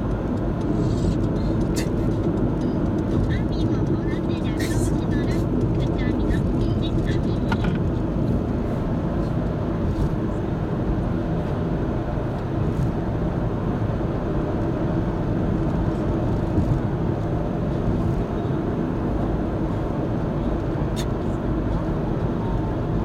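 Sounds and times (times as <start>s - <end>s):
car road noise from inside: 0.0s - 23.0s.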